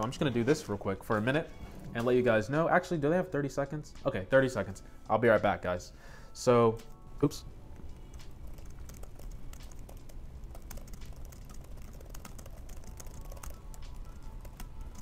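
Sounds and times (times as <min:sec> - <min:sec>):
background music: 0:00.0 - 0:15.0
laptop keyboard typing: 0:07.8 - 0:15.0.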